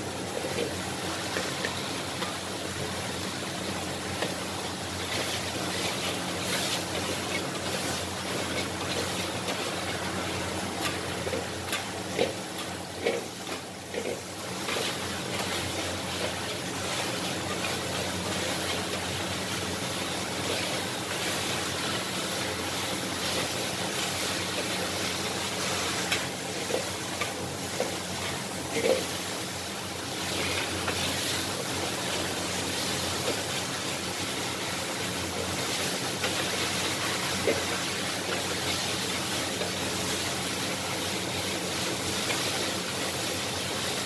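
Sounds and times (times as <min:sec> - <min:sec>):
noodles sizzling: 0:00.0 - 0:44.0.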